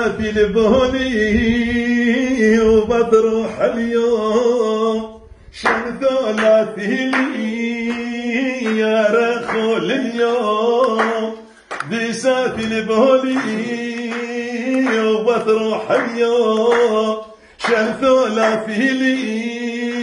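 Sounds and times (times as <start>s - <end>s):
man singing unaccompanied: 0.0s - 20.0s.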